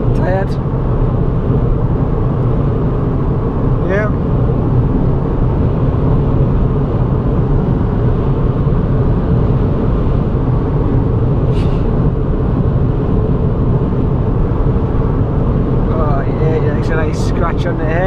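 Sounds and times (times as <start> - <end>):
car cabin road and engine noise: 0.0 - 18.0.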